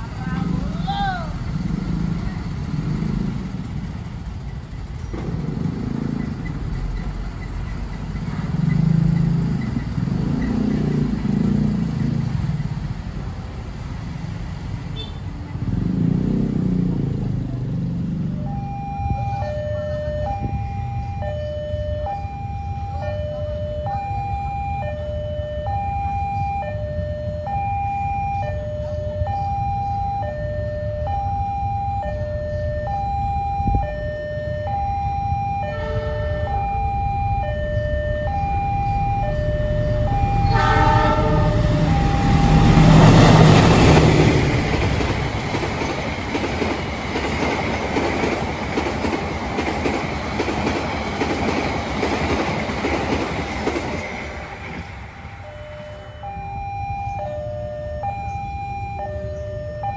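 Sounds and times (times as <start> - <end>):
train rushing past: 0.0 - 19.3, 34.7 - 56.9
train wheel clatter: 2.6 - 10.8, 41.9 - 55.1
level-crossing alarm two-tone chime: 18.5 - 43.4, 55.4 - 59.9
train horn: 35.6 - 36.6, 39.8 - 43.8.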